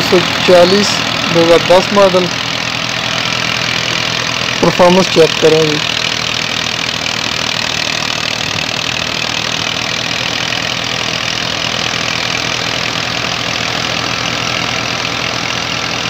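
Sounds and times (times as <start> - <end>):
diesel engine running under load: 0.0 - 16.0.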